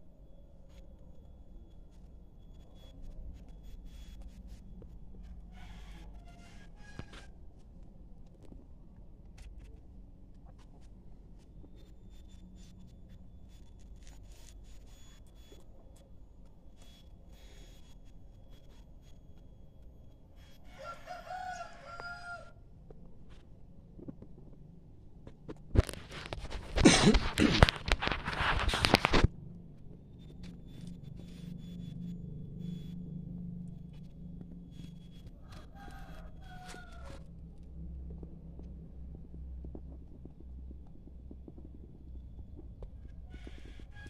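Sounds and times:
rooster crowing: 0:05.5 - 0:07.3, 0:20.6 - 0:22.6, 0:35.4 - 0:37.4, 0:43.2 - 0:44.0.

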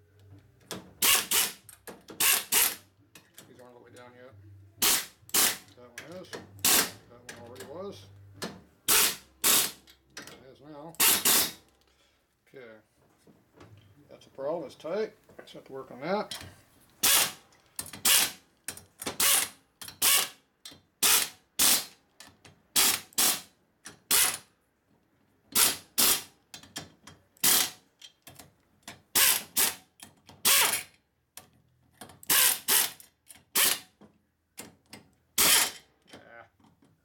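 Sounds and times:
air tool spinning: 0:01.0 - 0:01.6, 0:32.3 - 0:33.0.

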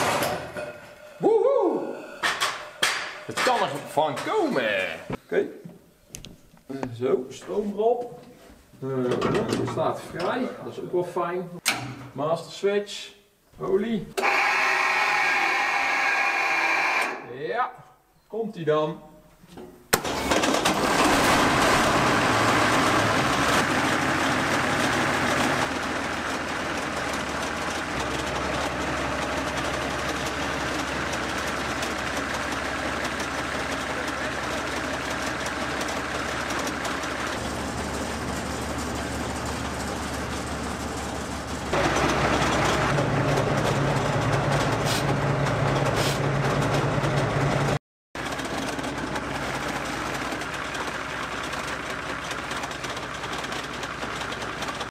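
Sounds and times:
diesel engine running: 0:20.0 - 0:54.9.

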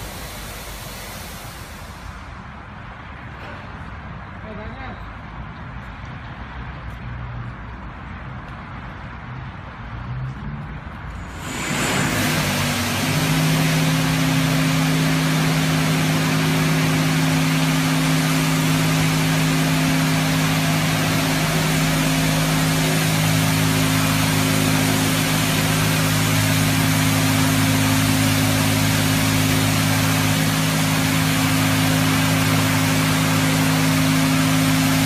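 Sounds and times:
hiss of water spray: 0:00.0 - 0:02.3, 0:11.2 - 0:35.0
deeper hum: 0:00.0 - 0:02.5, 0:11.2 - 0:35.0
machinery hum: 0:00.0 - 0:02.8, 0:11.1 - 0:35.0.

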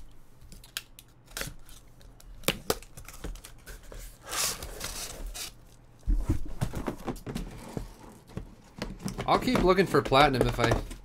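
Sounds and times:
cardboard rustling scrape: 0:03.7 - 0:05.6, 0:06.2 - 0:10.0
boxes knocking and thumping: 0:06.0 - 0:11.0.

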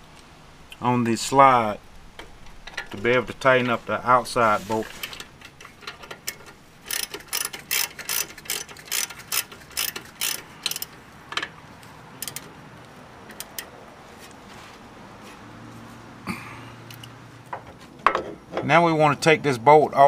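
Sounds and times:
ratchet wrench clicking: 0:05.6 - 0:11.5, 0:12.2 - 0:12.5, 0:13.3 - 0:13.8, 0:16.9 - 0:17.2.

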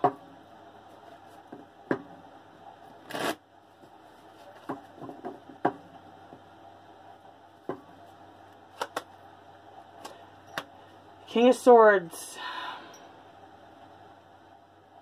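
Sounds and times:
cards snapping and tapping: 0:08.8 - 0:09.1.

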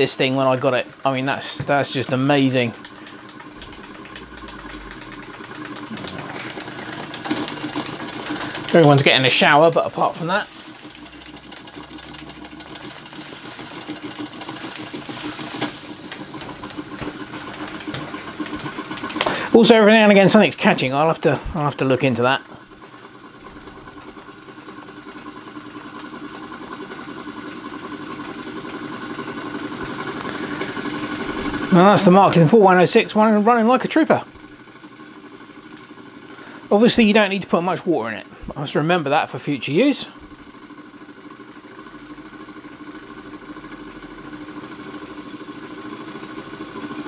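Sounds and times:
light mechanical clatter: 0:00.0 - 0:19.6.

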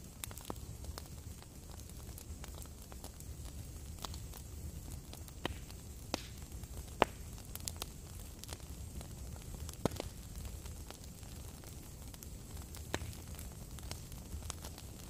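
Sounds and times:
wood fire crackling: 0:00.0 - 0:15.0.

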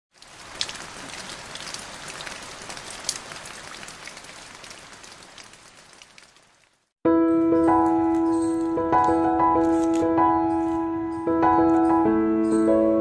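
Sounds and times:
drops splashing: 0:00.1 - 0:06.8
rain falling on leaves: 0:00.1 - 0:06.9.

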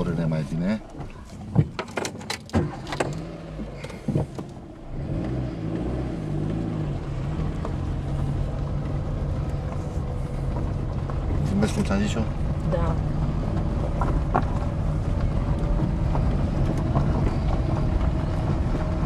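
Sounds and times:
car engine running: 0:00.0 - 0:19.0
tyres on loose gravel: 0:06.3 - 0:19.0.

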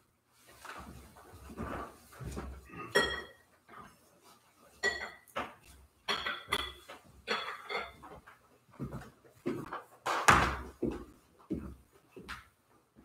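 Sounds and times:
glass and metal vessels clinking: 0:02.8 - 0:03.4, 0:04.8 - 0:05.3, 0:06.1 - 0:08.1.

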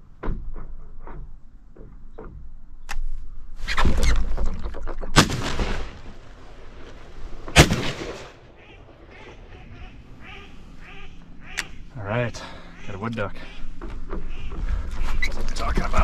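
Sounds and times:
shotgun shots: 0:05.2 - 0:06.2, 0:07.5 - 0:09.6.

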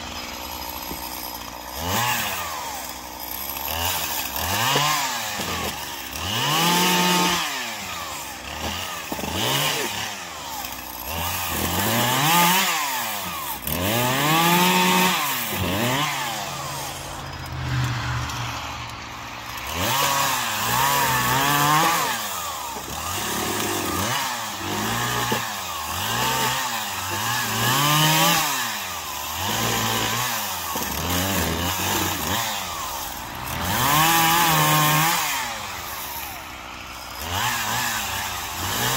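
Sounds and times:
chainsaw revving: 0:00.0 - 0:38.9.

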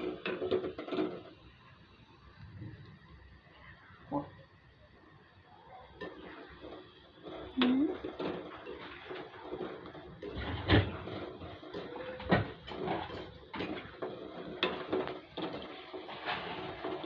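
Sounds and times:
metal spoon scraping a pan: 0:00.0 - 0:01.4, 0:06.0 - 0:17.0
dough balls sizzling in oil: 0:00.0 - 0:17.0.

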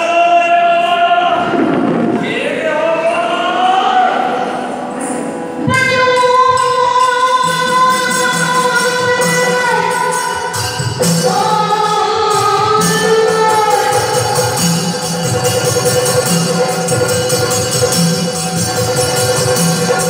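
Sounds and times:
person singing long notes: 0:00.0 - 0:15.1
hand-cymbal beats: 0:04.8 - 0:20.0.

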